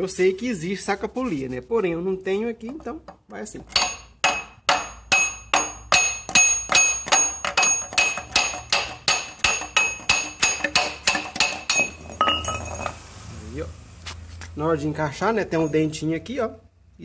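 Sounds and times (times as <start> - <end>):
hammer striking metal pulley: 3.7 - 13.0.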